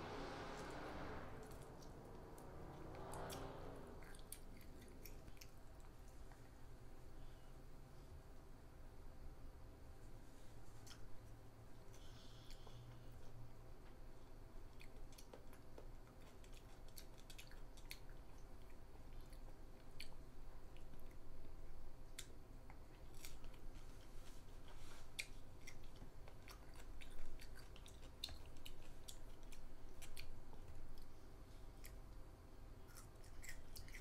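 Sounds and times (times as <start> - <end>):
child chewing crisp vegetables: 1.4 - 7.5, 10.5 - 34.0.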